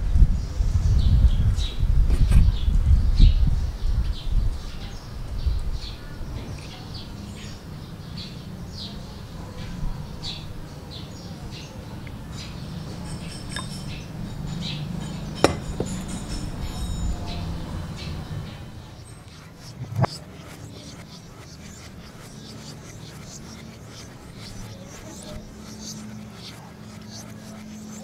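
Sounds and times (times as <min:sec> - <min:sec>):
small birds chirping: 0:00.4 - 0:28.0
sharp clink: 0:13.0 - 0:17.6.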